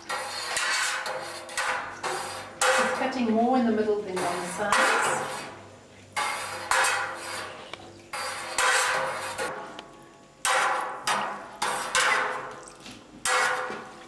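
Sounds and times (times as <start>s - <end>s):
knife scraping a metal pot: 0.0s - 3.4s, 4.1s - 9.6s, 10.4s - 12.6s, 13.2s - 14.0s.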